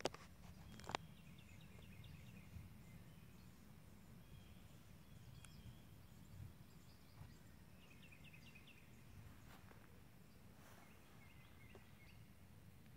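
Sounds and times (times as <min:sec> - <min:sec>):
distant songbird singing: 0:00.0 - 0:12.9
faint bird chirps: 0:00.4 - 0:12.4
wind on microphone: 0:04.8 - 0:07.7.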